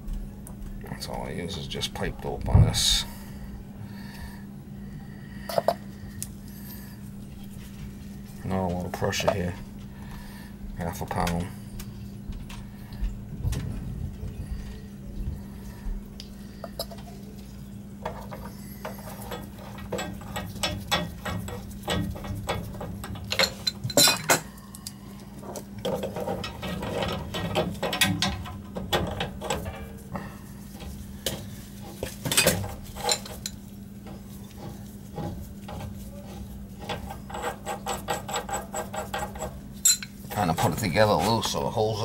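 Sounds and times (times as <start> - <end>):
low hum: 0.0 - 38.0
metal clinks and scrapes: 30.7 - 41.5.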